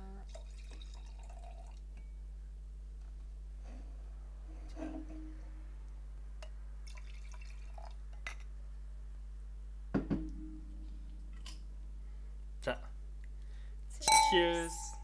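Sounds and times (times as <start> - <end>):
wine pouring: 0.3 - 1.9, 6.8 - 8.0
low hum: 8.0 - 15.0
glassware clicking and tapping: 14.0 - 14.6.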